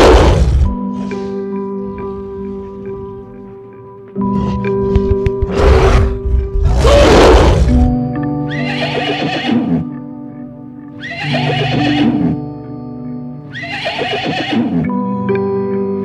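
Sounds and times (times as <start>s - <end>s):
background music: 0.0s - 16.0s
horse whinnying: 8.5s - 9.9s, 11.0s - 12.4s, 13.5s - 14.9s.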